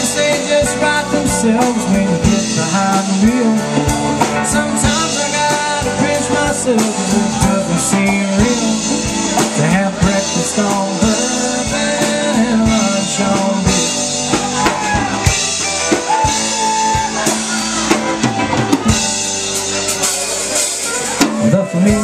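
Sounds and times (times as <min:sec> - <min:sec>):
drum kit steady beat: 0:00.0 - 0:22.0
electric bass: 0:00.0 - 0:22.0.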